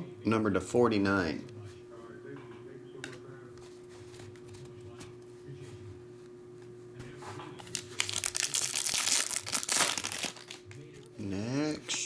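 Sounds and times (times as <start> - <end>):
foil wrapper tearing and crinkling: 7.6 - 10.8.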